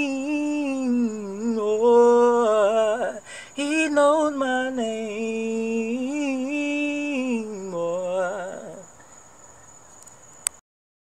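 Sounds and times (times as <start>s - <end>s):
man singing wordless notes: 0.0s - 9.0s
faint hiss with high whine: 0.0s - 10.6s
click: 10.0s - 10.6s.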